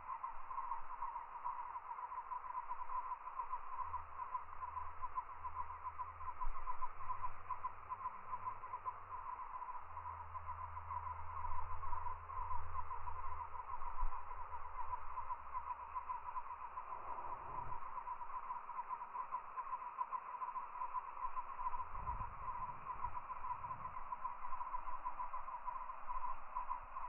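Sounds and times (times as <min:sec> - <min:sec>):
chorus of pulsing animal calls: 0:00.0 - 0:27.0
low rumble: 0:20.7 - 0:26.7.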